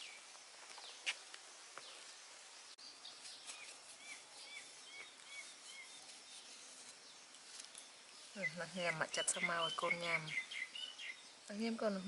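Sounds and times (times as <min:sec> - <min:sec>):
bird chirping: 0:00.0 - 0:12.0
faint outdoor hiss: 0:00.0 - 0:12.0.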